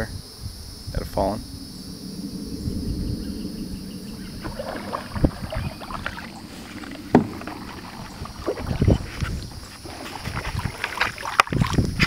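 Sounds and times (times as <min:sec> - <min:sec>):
kayak paddles splashing water: 0:03.9 - 0:12.0.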